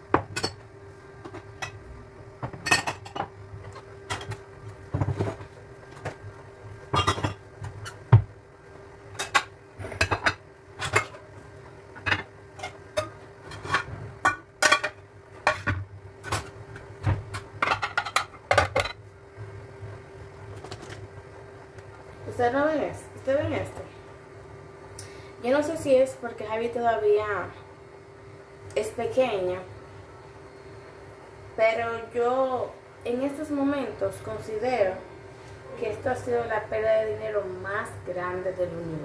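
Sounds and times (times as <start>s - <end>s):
faint steady hum: 0.0s - 39.0s
dishes and pot lids clattering: 2.4s - 3.3s, 6.9s - 8.0s, 9.2s - 11.2s, 12.0s - 16.5s, 17.6s - 19.0s.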